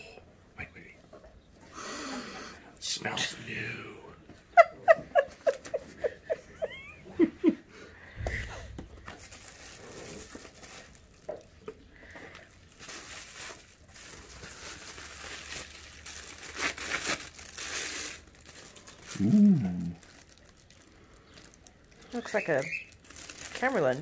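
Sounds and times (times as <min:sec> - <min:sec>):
plastic packaging crinkling: 0:08.9 - 0:24.0
brief vocal sound: 0:19.2 - 0:20.0.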